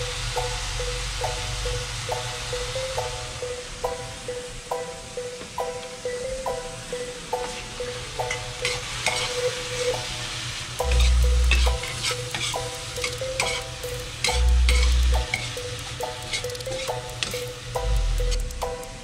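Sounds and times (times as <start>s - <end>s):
string beans sizzling in a frying pan: 0.0s - 2.7s, 7.5s - 18.9s
background music: 0.0s - 19.0s.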